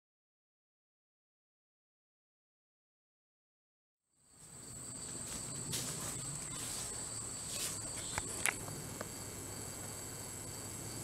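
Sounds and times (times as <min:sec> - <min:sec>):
crickets droning: 0:04.1 - 0:11.0
footsteps on leaf litter: 0:04.4 - 0:08.6
sharp clicks: 0:08.0 - 0:09.1.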